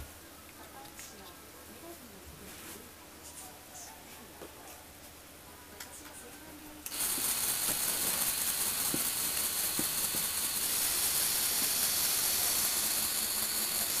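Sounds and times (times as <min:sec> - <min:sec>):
electric motors whirring: 0:06.9 - 0:14.0.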